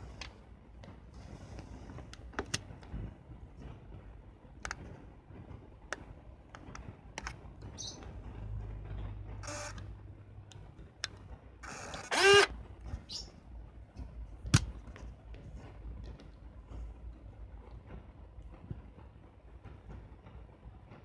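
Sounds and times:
camera motor hum: 9.4 - 9.8, 11.6 - 12.5
camera motor whir: 9.4 - 9.8, 11.6 - 12.5.

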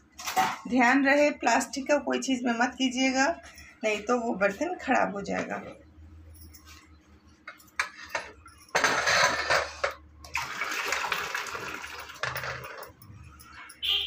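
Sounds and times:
water pouring through metal strainer: 10.3 - 12.8.

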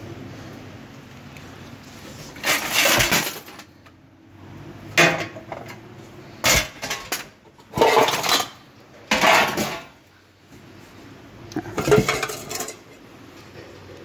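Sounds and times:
metal fittings clattering in box: 2.4 - 3.7.

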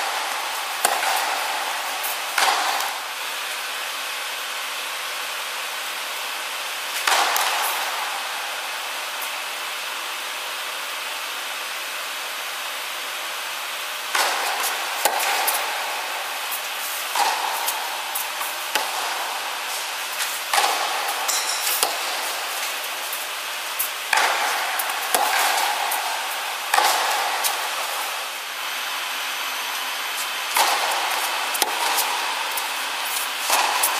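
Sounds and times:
tennis ball struck by rackets: 0.0 - 3.2, 7.0 - 8.3, 14.1 - 28.4, 29.6 - 33.9
steady hiss: 14.3 - 33.9.

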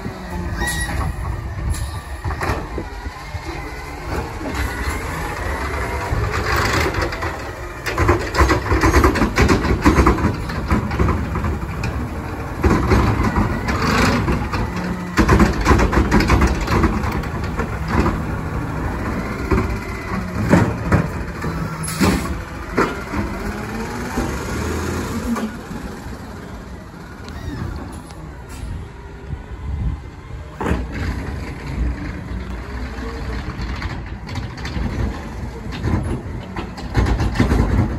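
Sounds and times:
garbage truck engine: 0.0 - 37.9
hydraulics whining: 0.0 - 37.9
cart banging against hopper: 4.0 - 25.8, 30.5 - 37.9.

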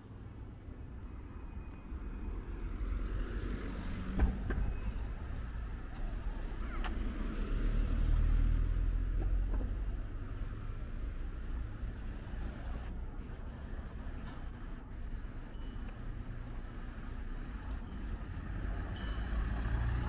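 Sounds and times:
car passing close by: 6.5 - 9.2.

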